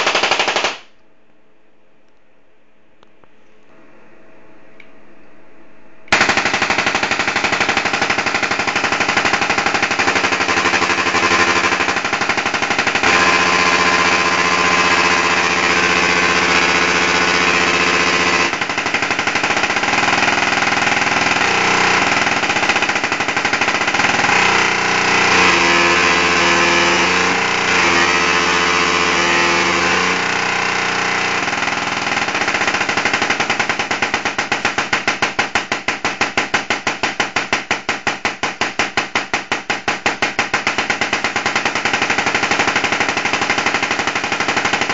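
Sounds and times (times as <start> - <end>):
tesla coil buzzing: 21.3 - 34.0.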